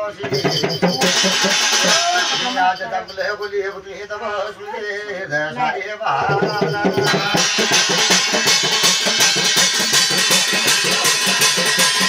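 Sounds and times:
drum-led folk music: 0:00.0 - 0:03.1, 0:06.0 - 0:12.0
bright ringing percussion: 0:00.0 - 0:04.1, 0:06.1 - 0:12.0.

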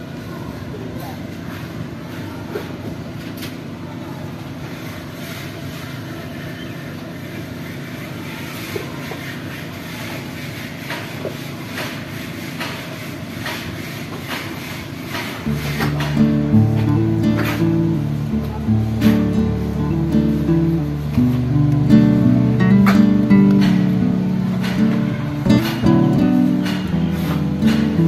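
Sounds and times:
strummed acoustic guitar music: 0:15.4 - 0:28.0.

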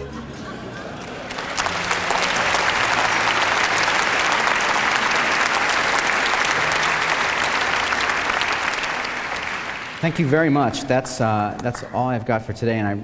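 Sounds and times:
audience applauding: 0:01.0 - 0:11.0.

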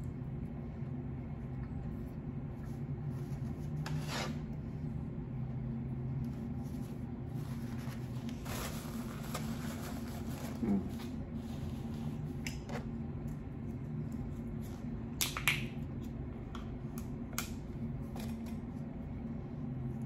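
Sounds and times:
steady low hum: 0:00.0 - 0:20.0
food containers rustling and scraping: 0:03.0 - 0:04.5, 0:06.1 - 0:13.0.

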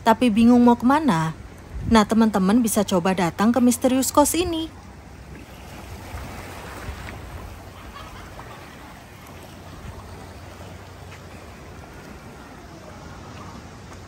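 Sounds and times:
sea surf washing on shore: 0:03.1 - 0:14.0.

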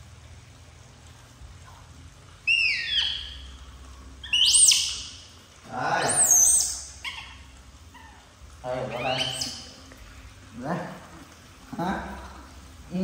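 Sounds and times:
baby monkey crying: 0:02.4 - 0:03.6, 0:04.2 - 0:05.1, 0:05.8 - 0:09.8.

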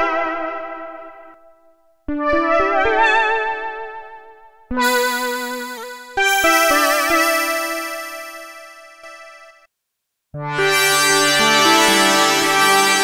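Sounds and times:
synthesizer chord: 0:04.7 - 0:09.7, 0:10.4 - 0:13.0.

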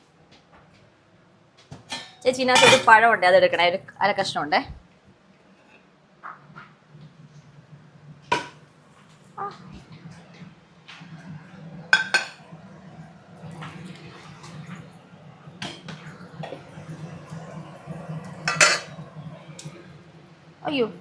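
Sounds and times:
steady low hum: 0:02.8 - 0:21.0
dishes and utensils clinking: 0:18.5 - 0:19.0.

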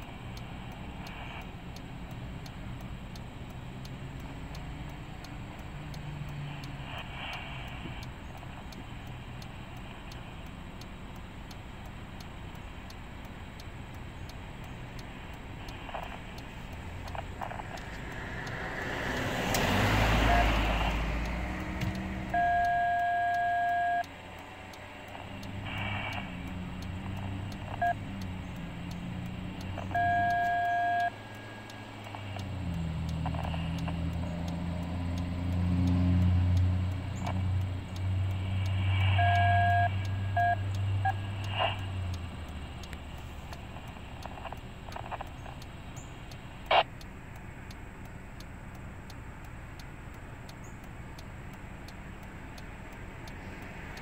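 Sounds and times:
sharp click: 0:15.0 - 0:22.4, 0:29.6 - 0:34.6, 0:42.8 - 0:47.1
heavy vehicle engine passing: 0:15.1 - 0:44.5.

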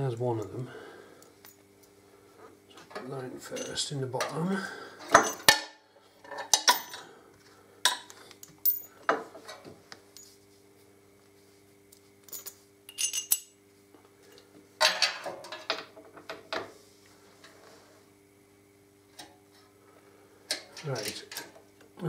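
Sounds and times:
metal bolt clinking: 0:12.3 - 0:13.5.

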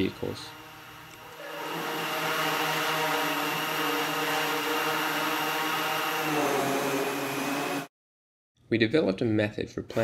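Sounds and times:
drone propellers buzzing: 0:00.0 - 0:07.9.

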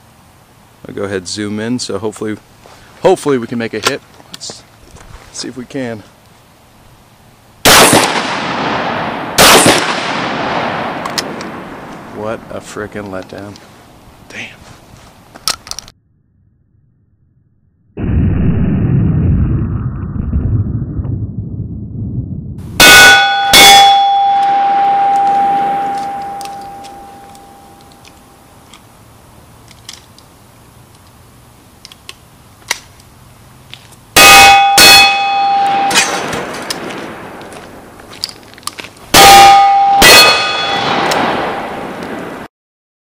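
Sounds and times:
shotgun firing: 0:07.7 - 0:11.8, 0:22.8 - 0:27.2, 0:34.2 - 0:37.4, 0:39.2 - 0:42.4
steel plate ringing: 0:22.8 - 0:28.5, 0:34.2 - 0:36.3, 0:39.1 - 0:41.1.

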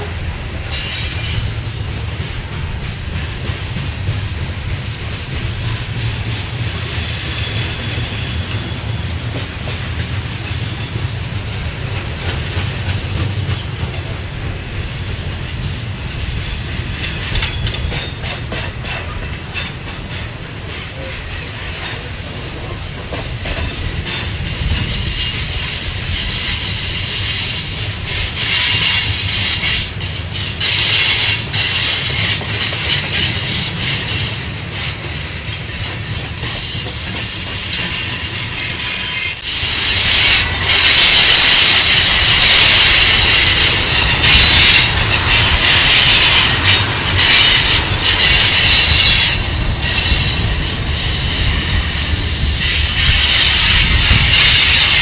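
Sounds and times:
train wheels clacking over rail joints: 0:00.0 - 0:38.6, 0:39.2 - 0:55.0
high wheel squeal: 0:23.6 - 0:29.8, 0:30.6 - 0:55.0.

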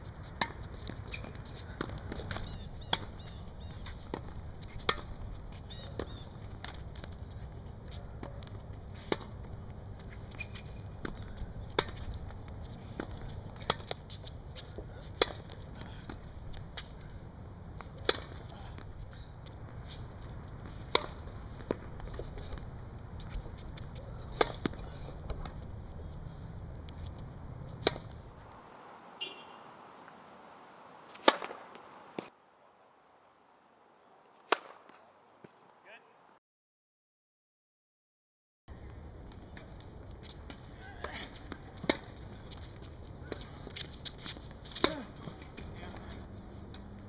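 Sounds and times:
tennis ball hit and bouncing: 0:00.2 - 0:07.2, 0:08.2 - 0:16.9, 0:17.8 - 0:25.6, 0:26.9 - 0:28.2, 0:29.2 - 0:32.3, 0:34.4 - 0:35.7, 0:39.5 - 0:46.1.

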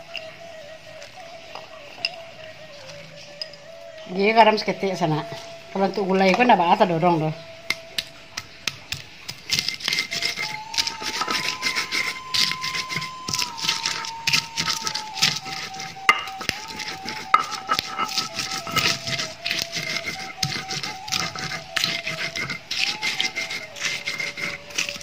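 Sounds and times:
stone grinding and scraping: 0:08.4 - 0:25.0
faint held tone: 0:10.1 - 0:19.0.

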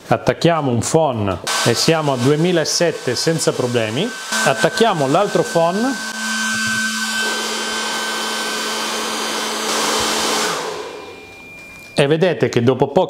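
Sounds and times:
hair dryers blowing: 0:01.5 - 0:12.0
faint high steady tone: 0:11.0 - 0:12.3.

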